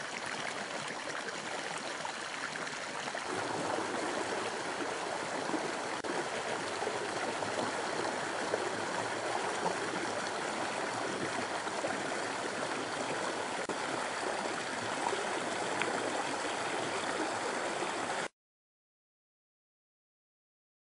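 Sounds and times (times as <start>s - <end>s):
creek water rushing and splashing: 0.0s - 18.3s.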